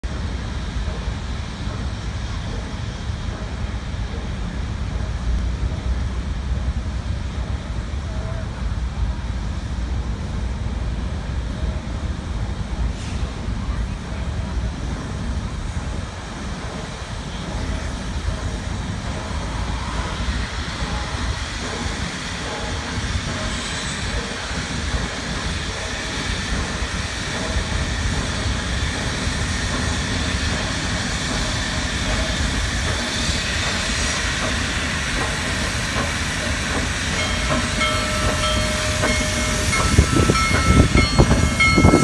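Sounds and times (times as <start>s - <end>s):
low rumble of locomotive: 0.0s - 42.0s
wind buffeting microphone: 38.2s - 42.0s.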